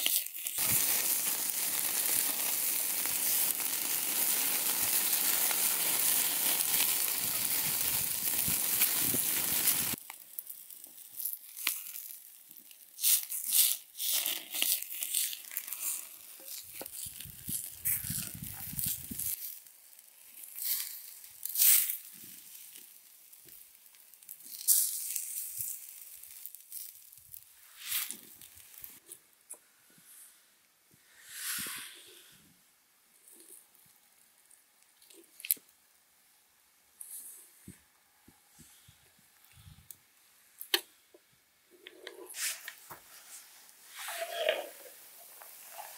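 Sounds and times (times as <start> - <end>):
meat sizzling over fire: 0.0 - 29.0, 33.3 - 35.7, 42.2 - 45.9
embers crackling and popping: 0.0 - 29.2, 33.1 - 36.4, 40.6 - 45.9.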